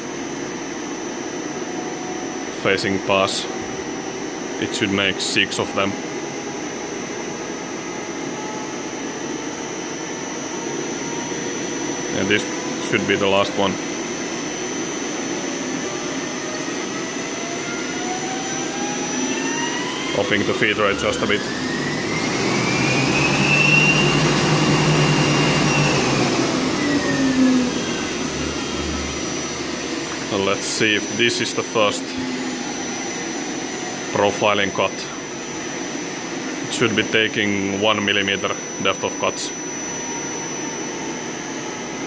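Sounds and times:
lathe spindle hum and hiss: 0:00.0 - 0:42.0
high thin whine: 0:10.6 - 0:35.6.

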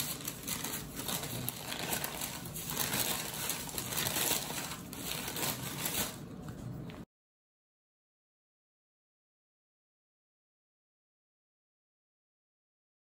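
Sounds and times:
paper sheets rustling and crinkling: 0:00.0 - 0:07.0.

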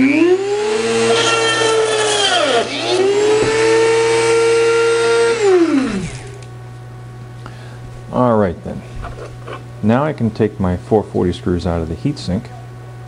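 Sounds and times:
drill press motor whine: 0:00.0 - 0:06.5.

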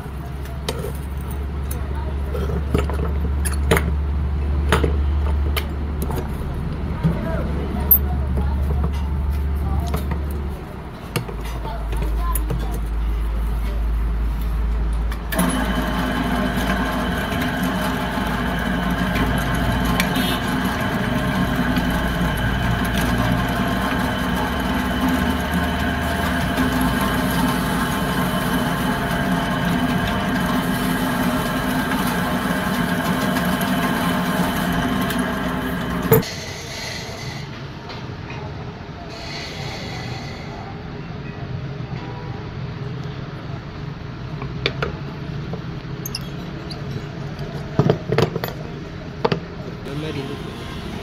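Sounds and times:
drill press running: 0:15.2 - 0:37.2.

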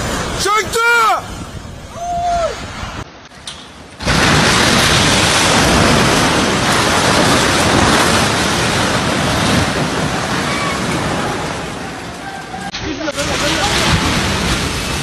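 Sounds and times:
roar of falling concrete and rubble: 0:04.0 - 0:15.0.

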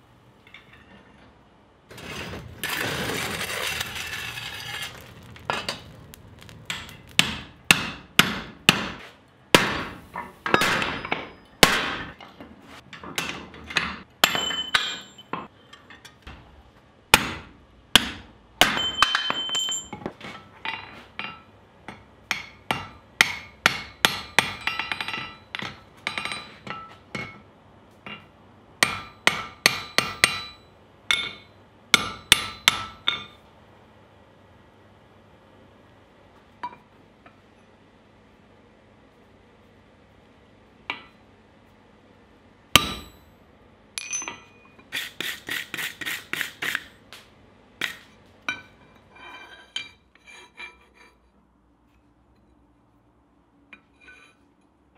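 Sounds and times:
hammer striking hot steel: 0:02.6 - 0:12.2, 0:13.0 - 0:16.2, 0:17.2 - 0:33.4, 0:42.7 - 0:43.3, 0:44.0 - 0:44.8.

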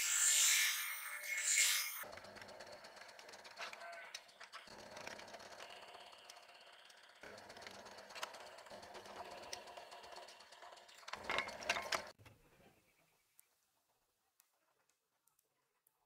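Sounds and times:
drill press boring wood: 0:01.8 - 0:12.2
scattered clicks: 0:02.0 - 0:12.2.

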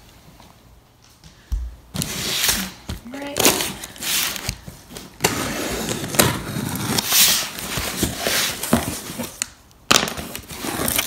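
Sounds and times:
box cutter slitting tape: 0:05.2 - 0:08.7.

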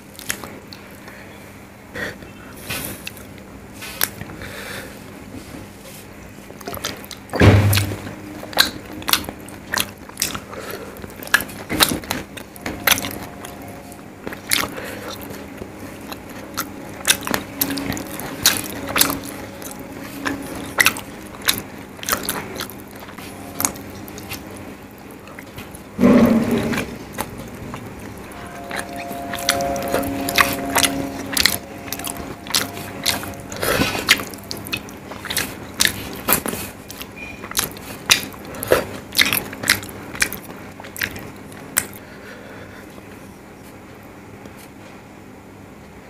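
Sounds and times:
faint steady hum: 0:00.0 - 0:46.0
wet chewing and mouth clicks: 0:06.4 - 0:13.5, 0:14.2 - 0:25.9, 0:30.8 - 0:42.0.

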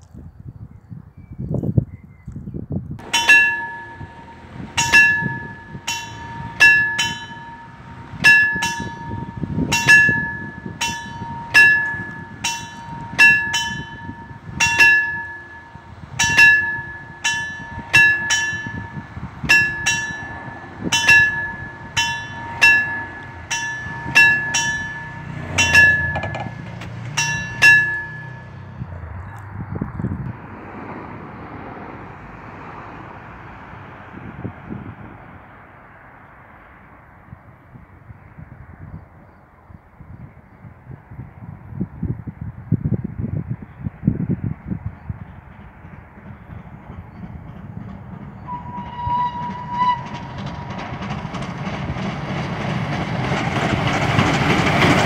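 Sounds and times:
level crossing bells ringing: 0:03.0 - 0:29.0.

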